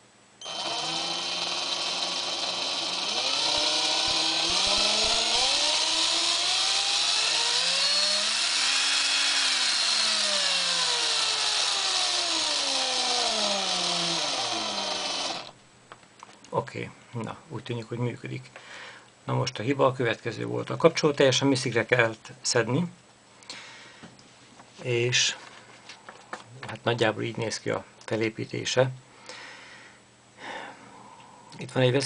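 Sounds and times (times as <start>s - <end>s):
cordless drill motor whining: 0.4s - 15.6s.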